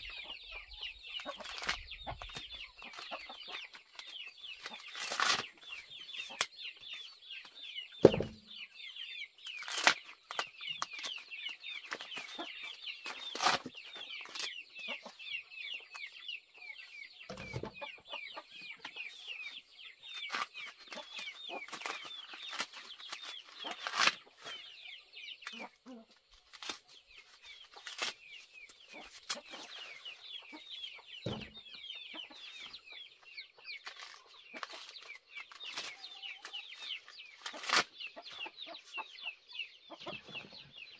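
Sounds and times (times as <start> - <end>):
chickens chirping: 0.0 - 40.9
corn husks tearing: 1.2 - 5.7, 9.4 - 14.6, 20.1 - 24.6, 26.3 - 29.7, 33.8 - 37.9
dull thuds: 8.0 - 8.4.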